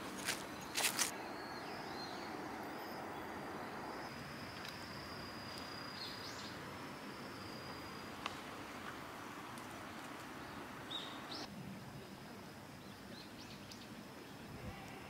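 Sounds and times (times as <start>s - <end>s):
steady background hiss: 0.0s - 15.0s
bird chirp: 0.2s - 4.1s, 5.5s - 8.1s, 10.4s - 12.2s.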